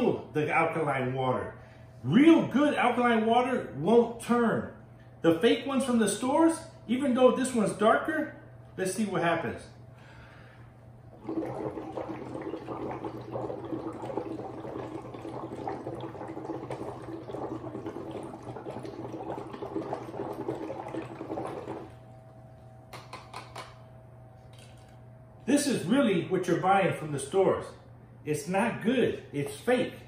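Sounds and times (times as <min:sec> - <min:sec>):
breath bubbling through straws: 0:11.1 - 0:22.0.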